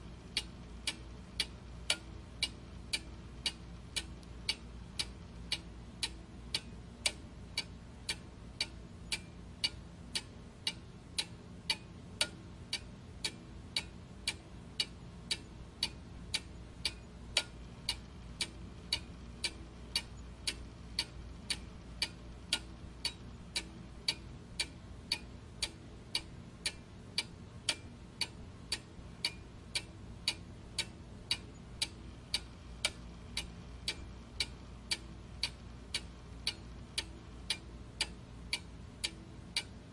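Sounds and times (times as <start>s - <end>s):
faint low hum: 0.0s - 39.9s
steady ticking: 0.0s - 39.9s.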